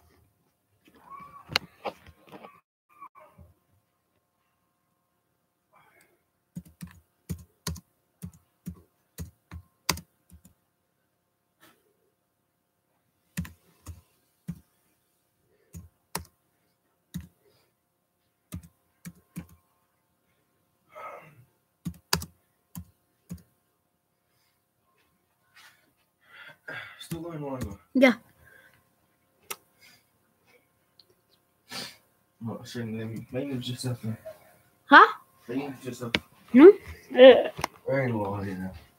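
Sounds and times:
typing on computer keyboard: 6.6 - 10.5, 13.4 - 14.0, 15.7 - 16.3, 18.5 - 19.6, 21.8 - 23.5.

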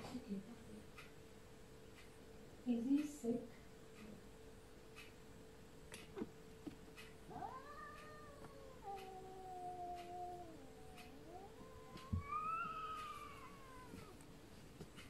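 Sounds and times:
cat yowling: 7.3 - 14.2.

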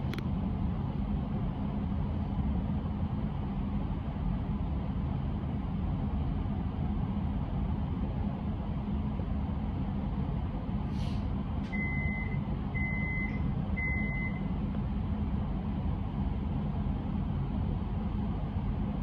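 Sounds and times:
train low hum: 0.0 - 19.0
train door warning beeps: 11.7 - 14.5.

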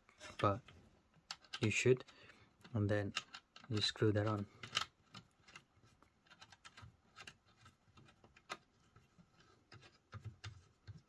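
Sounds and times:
antenna clicking and scraping on connector: 0.2 - 11.0.

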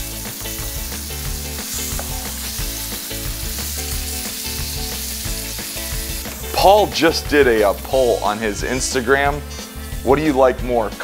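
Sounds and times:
fish sizzling in oil: 0.0 - 11.0
spatula turning fish in pan: 0.2 - 8.9.

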